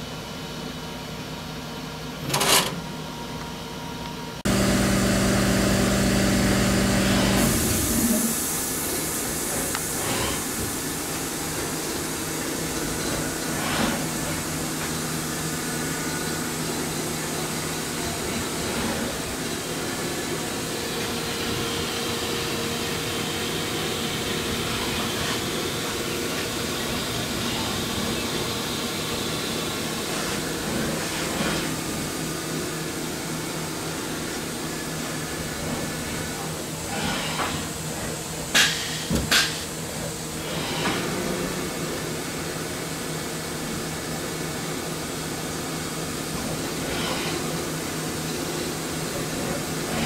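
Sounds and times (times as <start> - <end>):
printer motors humming: 4.5 - 8.7.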